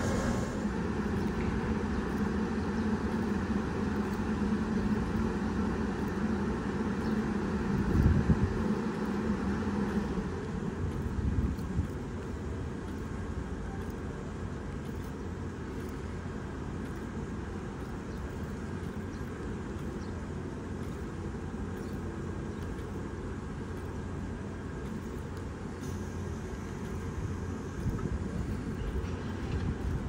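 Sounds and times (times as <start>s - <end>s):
brief low rumbles: 0.0s - 2.1s
idling electric train hum: 0.0s - 30.0s
low hum: 0.0s - 30.0s.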